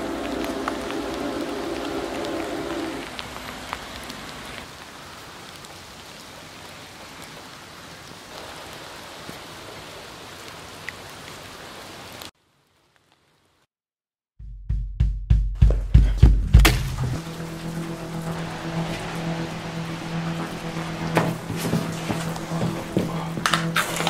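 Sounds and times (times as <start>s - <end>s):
low hum: 0.0s - 3.2s, 16.4s - 24.0s
rain-like hiss: 0.0s - 13.7s, 17.2s - 23.3s.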